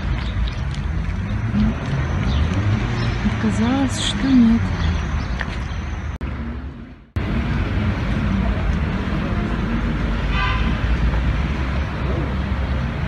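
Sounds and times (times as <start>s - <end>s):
traffic rumble: 0.0s - 13.0s
car horn toot: 10.3s - 10.8s.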